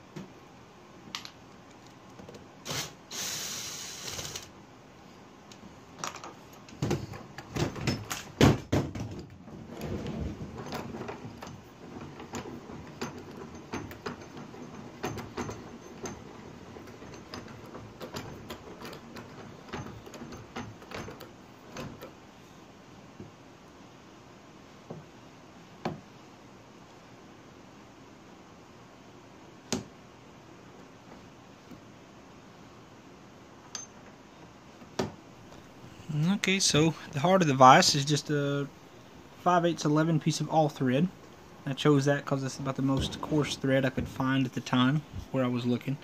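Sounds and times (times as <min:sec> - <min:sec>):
short hiss: 0:02.6 - 0:04.5
metal parts knocking on wood: 0:06.0 - 0:22.2.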